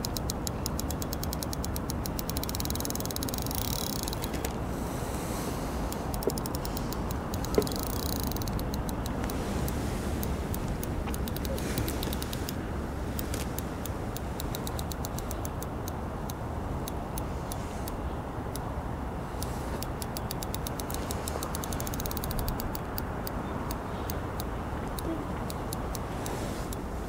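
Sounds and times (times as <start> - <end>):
fishing reel clicking: 0.0 - 4.6, 5.8 - 12.6, 13.2 - 16.0, 19.8 - 23.4
wind noise on microphone: 0.0 - 27.0.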